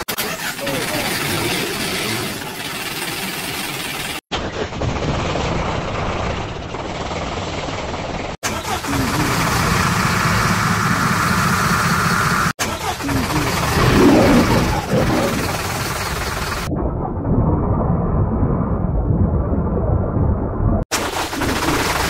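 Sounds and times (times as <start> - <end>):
diesel truck engine starting: 0.0 - 3.6, 8.5 - 16.7.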